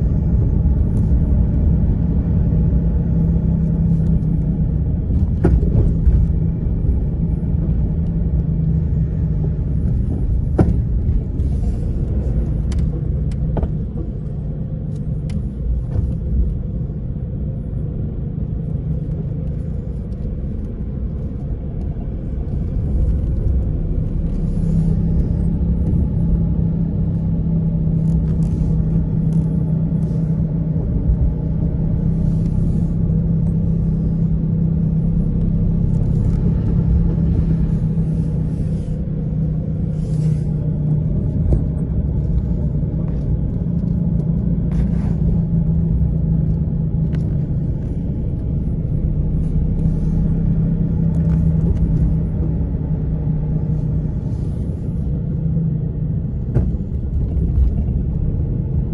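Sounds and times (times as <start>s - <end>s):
car engine and tyres rumbling: 0.0s - 58.9s
constant hum: 0.0s - 58.9s
faint tyre hiss on wet road: 37.4s - 40.7s.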